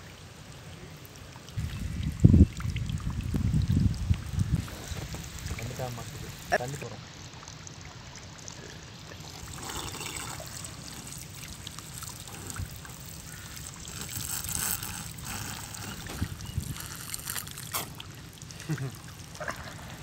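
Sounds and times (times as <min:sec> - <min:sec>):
water splashing into puddle: 0:09.2 - 0:20.0.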